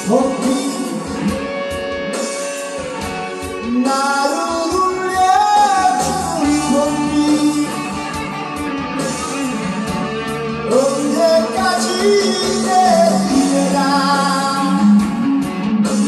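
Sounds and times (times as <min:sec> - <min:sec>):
man singing a slow ballad: 0:00.0 - 0:01.6, 0:03.6 - 0:08.3, 0:10.6 - 0:16.0
electric guitar: 0:00.0 - 0:16.0.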